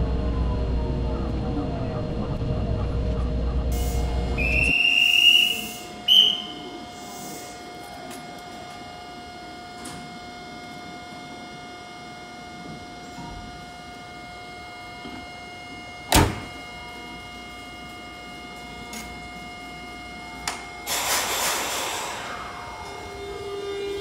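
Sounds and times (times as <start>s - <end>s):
hum of standing train: 0.0s - 24.0s
train rumble: 0.0s - 24.0s
conductor's whistle blowing: 4.4s - 7.5s.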